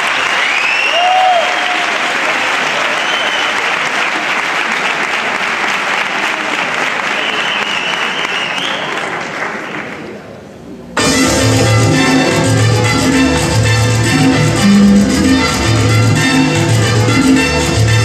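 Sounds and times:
people cheering: 0.0 - 9.3
audience applauding: 0.0 - 10.2.

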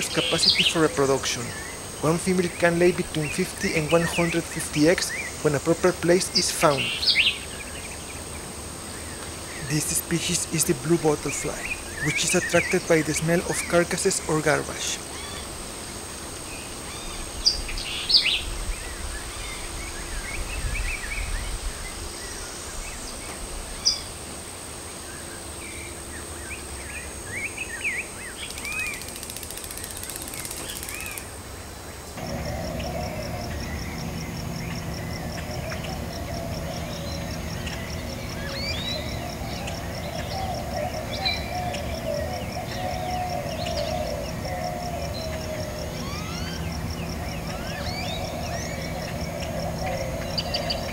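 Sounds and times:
birds chirping: 0.0 - 50.9
wavering drone: 32.2 - 50.9.

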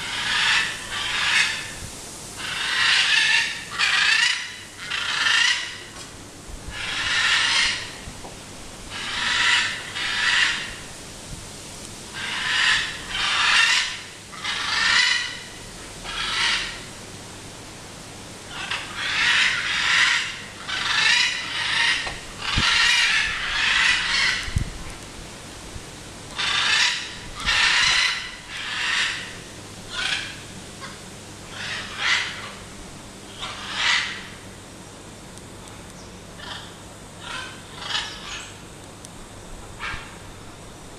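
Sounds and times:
macaws screeching: 0.0 - 1.8, 2.4 - 5.9, 6.7 - 8.0, 8.9 - 10.9, 12.2 - 16.9, 18.5 - 24.6, 26.4 - 32.7, 33.3 - 34.4, 36.4 - 38.5.

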